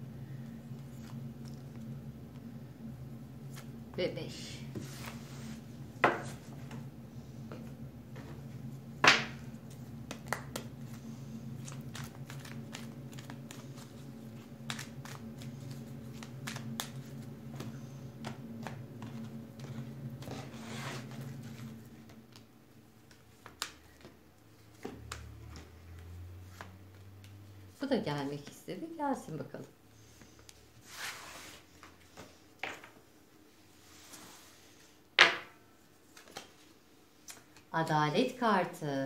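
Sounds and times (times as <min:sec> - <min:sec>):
steady low hum: 0:00.0 - 0:39.0
cards sliding across wooden table: 0:04.7 - 0:06.8, 0:14.7 - 0:21.8, 0:30.1 - 0:32.3, 0:33.8 - 0:34.9
cards shuffled by hand: 0:11.6 - 0:27.4, 0:36.0 - 0:37.6.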